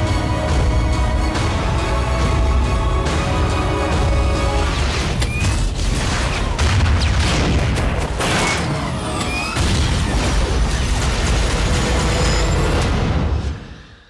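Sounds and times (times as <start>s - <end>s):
explosions and booming impacts: 4.4s - 13.7s.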